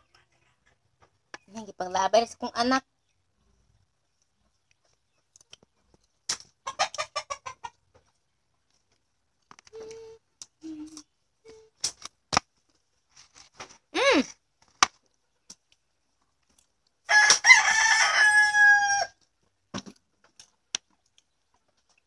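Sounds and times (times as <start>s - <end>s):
rooster crowing: 17.1s - 19.2s.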